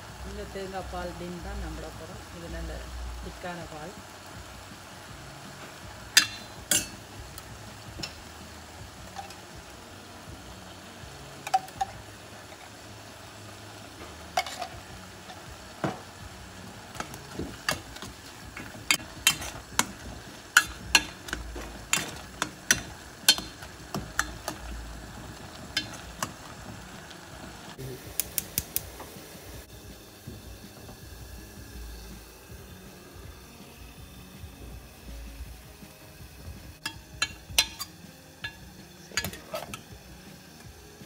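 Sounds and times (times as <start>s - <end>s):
low steady sizzle: 0.0s - 41.0s
ladle clinking against metal pot: 6.2s - 7.0s, 20.5s - 24.6s, 36.8s - 38.6s, 39.2s - 39.8s.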